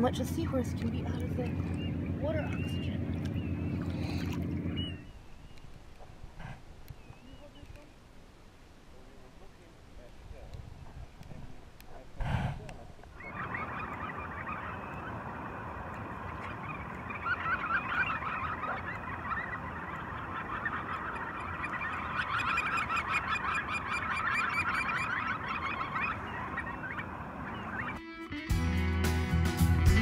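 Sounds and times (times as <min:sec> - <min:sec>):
flock of shorebirds calling: 0:00.3 - 0:05.6, 0:13.1 - 0:28.0.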